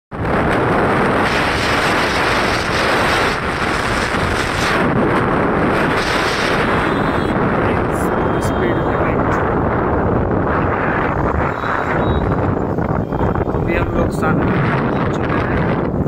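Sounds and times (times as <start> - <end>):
road noise: 0.1 - 16.0
wind buffeting on microphone: 0.1 - 16.0
motorcycle engine: 0.4 - 8.6.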